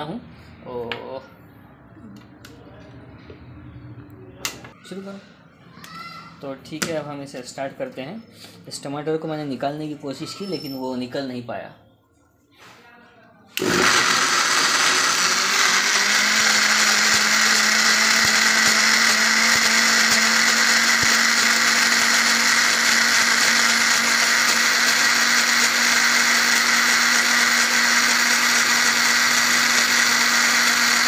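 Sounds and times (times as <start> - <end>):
juicer motor humming: 13.6 - 31.0.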